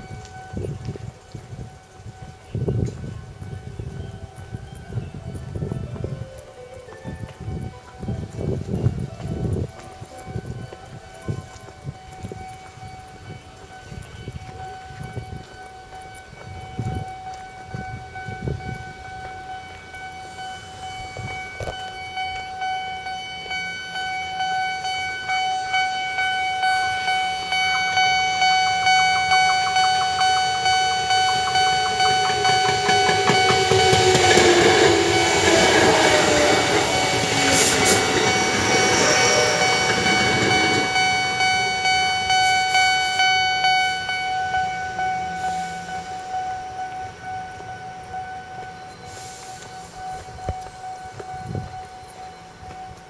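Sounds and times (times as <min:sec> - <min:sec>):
level crossing alarm ringing: 0:10.0 - 0:53.0
train wheels clattering over rails: 0:28.7 - 0:42.7.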